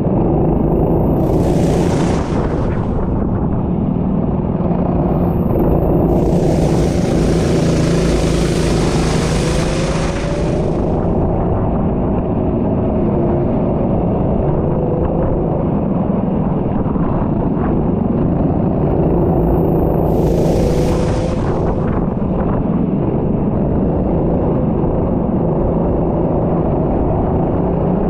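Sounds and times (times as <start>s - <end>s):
high hiss: 1.1s - 3.4s, 5.2s - 11.2s, 19.8s - 22.2s
race car engine revving: 1.2s - 3.3s, 5.2s - 11.3s.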